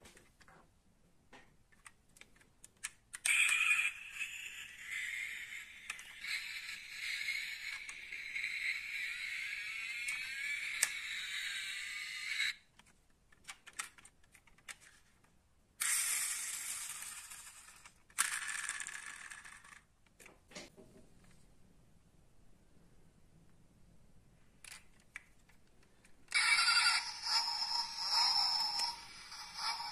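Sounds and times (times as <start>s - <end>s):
metal toy handling clicks: 1.8s - 14.9s, 24.6s - 25.5s
toy car motor whirring: 3.2s - 12.6s, 15.8s - 19.8s, 26.3s - 29.9s.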